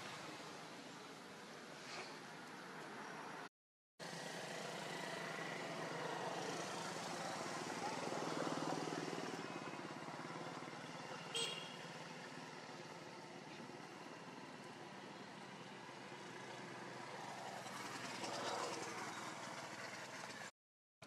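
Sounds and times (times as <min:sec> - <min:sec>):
outdoor noise: 0:00.0 - 0:20.5
motor vehicle passing: 0:15.9 - 0:20.5.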